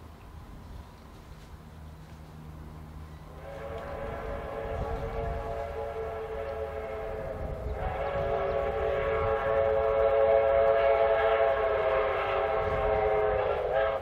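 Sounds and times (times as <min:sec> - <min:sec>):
locomotive horn chime: 0:03.1 - 0:14.0.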